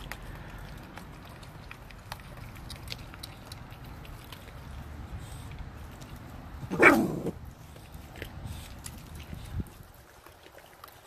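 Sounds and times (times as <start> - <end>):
puppies chewing with crunches: 0.0 - 11.0
puppy short vocal sound: 6.7 - 7.4.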